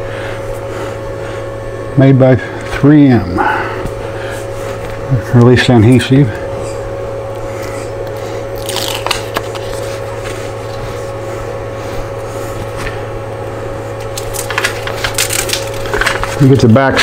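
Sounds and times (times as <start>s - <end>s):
steady low hum: 0.0s - 17.0s
adhesive backing rustling and crackling: 14.0s - 17.0s.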